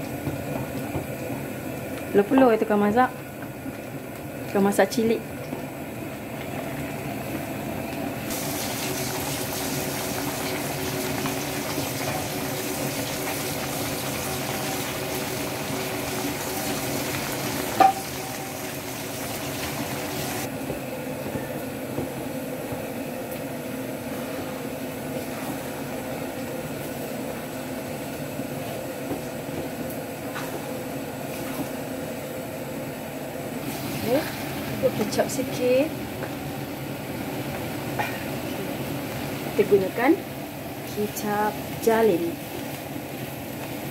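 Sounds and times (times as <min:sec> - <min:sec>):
noodles sizzling in a wok: 0:08.3 - 0:20.5, 0:33.6 - 0:43.9.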